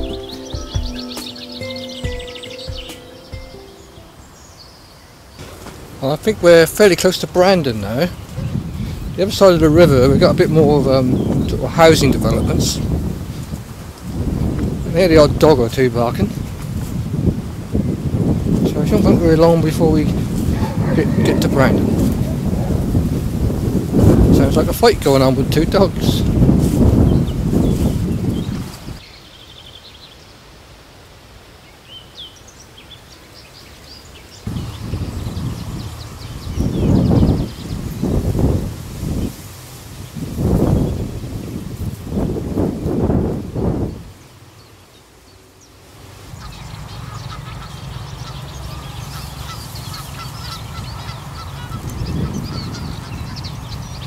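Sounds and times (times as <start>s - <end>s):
small birds singing: 0.0s - 16.4s, 17.7s - 30.5s, 31.6s - 42.3s, 43.8s - 54.0s
low rumble on microphone: 16.2s - 24.8s, 34.5s - 39.4s
geese calling: 19.0s - 22.8s, 46.3s - 53.8s.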